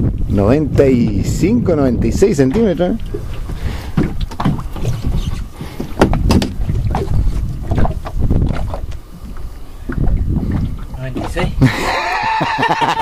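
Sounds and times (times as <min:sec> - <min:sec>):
wind rumbling on microphone: 0:00.0 - 0:13.0
knocks and bumps on boat: 0:02.4 - 0:09.0, 0:09.9 - 0:11.6.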